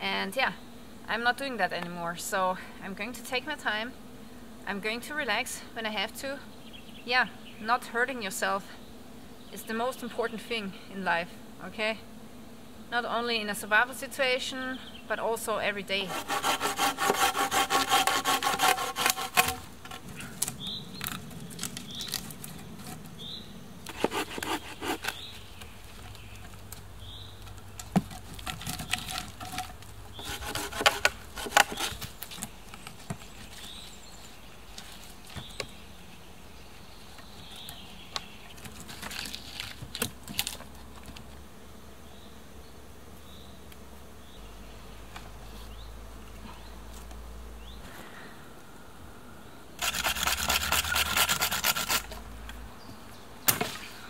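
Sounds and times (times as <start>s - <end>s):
hand saw cutting wood: 16.0s - 20.1s, 23.9s - 25.3s, 28.0s - 32.2s, 49.8s - 52.2s
scraping on wood: 16.0s - 23.1s, 23.8s - 26.6s, 27.4s - 33.8s, 49.8s - 52.2s.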